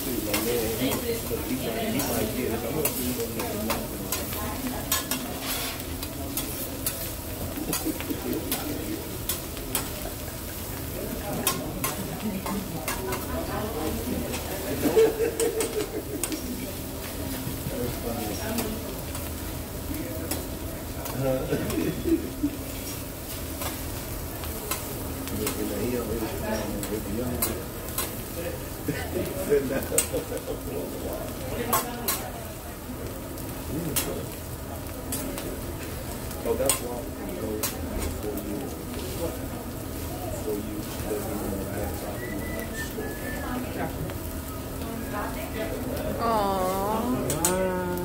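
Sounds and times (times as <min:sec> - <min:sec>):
food sizzling on a griddle: 0:00.0 - 0:48.0
metal spatulas clicking on hot plate: 0:00.3 - 0:01.0, 0:02.0 - 0:02.2, 0:02.8 - 0:05.2, 0:06.0 - 0:07.0, 0:07.6 - 0:10.0, 0:11.4 - 0:13.3, 0:15.4 - 0:16.4, 0:20.3 - 0:21.2, 0:24.7 - 0:25.6, 0:26.8 - 0:28.2, 0:31.7 - 0:32.2
spatulas clicking and scraping: 0:02.0 - 0:10.0, 0:14.3 - 0:16.5.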